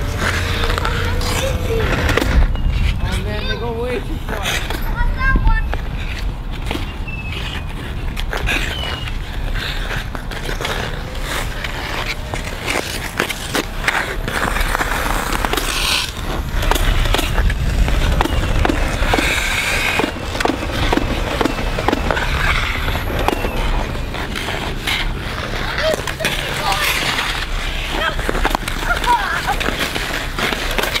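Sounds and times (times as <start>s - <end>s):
wind rumble on microphone: 0.0s - 13.2s, 16.1s - 26.0s
ice skates scraping ice: 0.0s - 31.0s.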